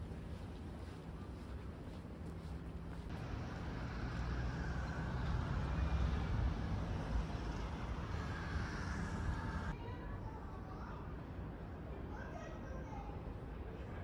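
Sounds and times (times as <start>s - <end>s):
vehicle rumble: 0.0s - 9.8s.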